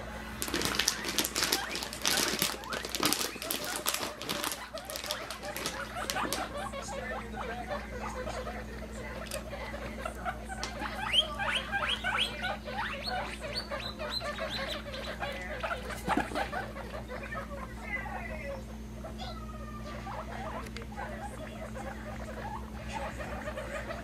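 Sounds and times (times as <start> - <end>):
baby guinea pigs squeaking: 0.0 - 24.0.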